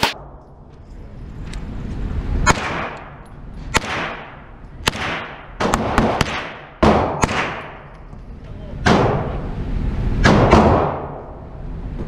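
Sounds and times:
gunshots echoing indoors: 2.4 - 7.9, 8.8 - 9.4, 10.2 - 11.4.

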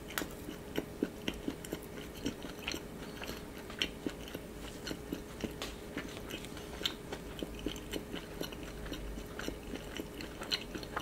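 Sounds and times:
crunchy chewing: 0.0 - 11.0
faint steady hum: 0.0 - 11.0.

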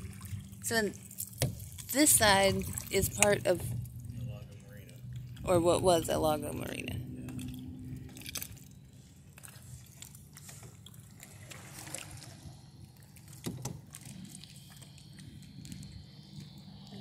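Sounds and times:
low hum: 0.0 - 17.0
water lapping against hull: 0.0 - 17.0
knocks and clicks on boat: 13.4 - 13.9.

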